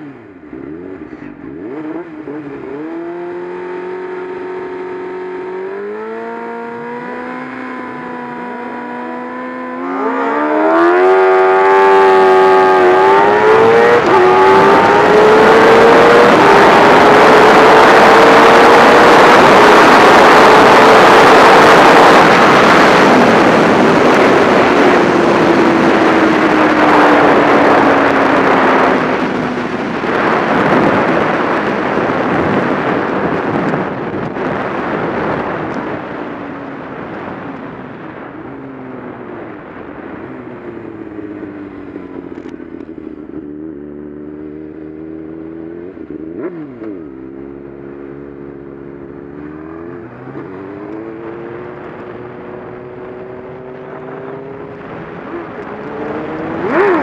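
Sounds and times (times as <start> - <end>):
motorcycle engine: 0.0 - 57.0
wind rushing: 5.5 - 36.7.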